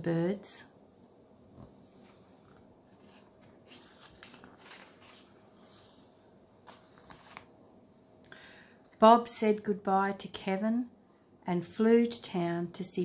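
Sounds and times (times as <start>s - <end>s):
paper page rustling: 1.6s - 7.5s.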